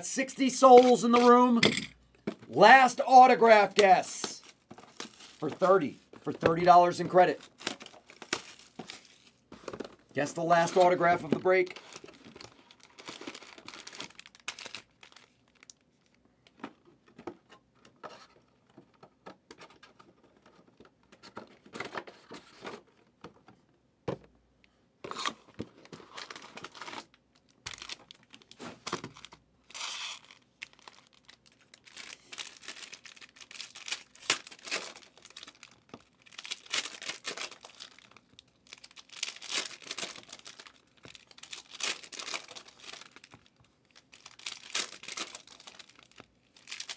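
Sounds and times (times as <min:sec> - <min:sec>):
foil packs crinkling: 0:00.4 - 0:01.6, 0:02.6 - 0:16.2, 0:25.9 - 0:46.9
packaging tearing: 0:11.6 - 0:15.8, 0:29.2 - 0:43.4, 0:44.0 - 0:46.9.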